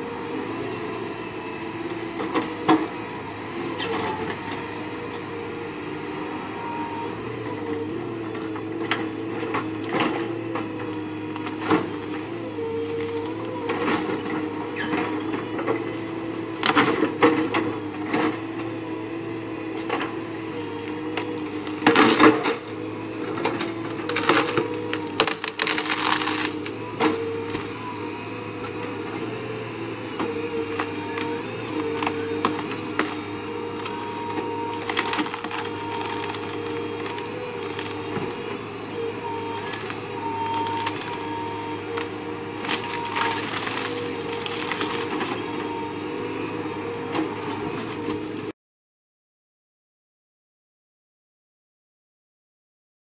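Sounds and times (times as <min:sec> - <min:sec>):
excavator engine and hydraulics: 0:00.0 - 0:48.6
tree limbs cracking and splintering: 0:21.2 - 0:22.5, 0:23.9 - 0:27.8, 0:30.8 - 0:38.4, 0:39.4 - 0:45.4.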